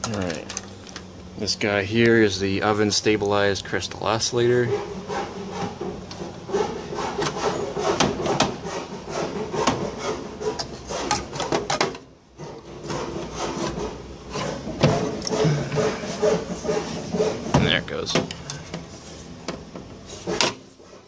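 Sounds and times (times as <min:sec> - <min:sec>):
rasping on wood: 0:04.6 - 0:11.5, 0:12.4 - 0:17.6.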